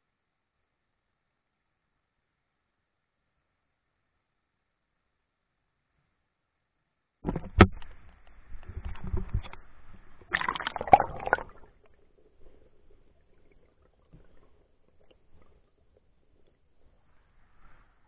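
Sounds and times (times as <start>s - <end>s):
water sloshing and splashing: 7.2s - 17.8s.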